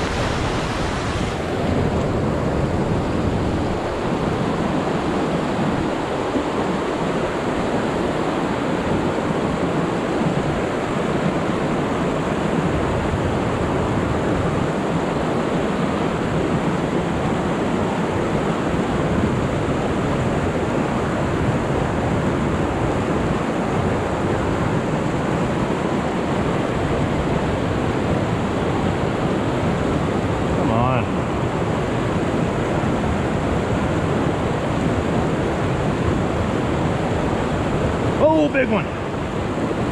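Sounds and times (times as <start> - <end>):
creek rushing over rocks: 0.0 - 12.4, 34.1 - 39.9.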